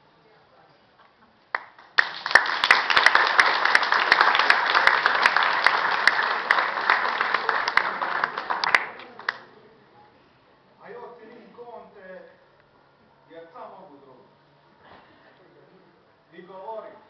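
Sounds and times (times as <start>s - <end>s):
audience applauding: 1.5s - 9.5s.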